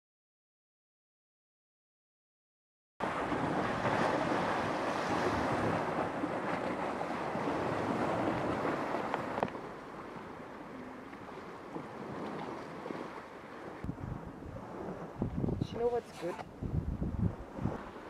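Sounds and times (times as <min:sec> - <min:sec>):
wind noise on microphone: 0:03.0 - 0:10.3, 0:11.3 - 0:18.0
waves washing over pebbles: 0:03.0 - 0:16.0.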